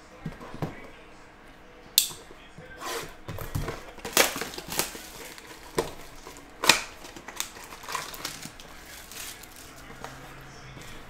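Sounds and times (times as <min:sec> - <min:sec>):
plastic shrink wrap tearing: 0:02.8 - 0:10.2.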